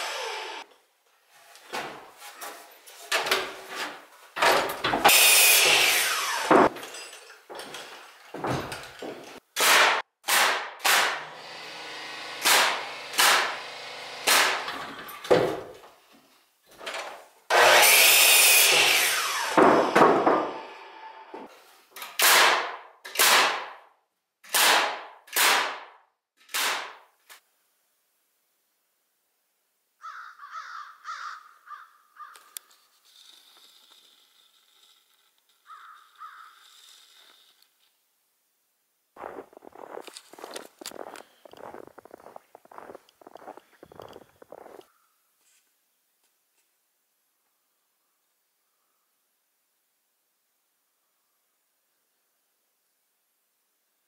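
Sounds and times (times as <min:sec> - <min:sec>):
circular saw cutting boards: 0:00.0 - 0:00.7, 0:04.9 - 0:07.2, 0:11.0 - 0:15.7, 0:17.5 - 0:21.5.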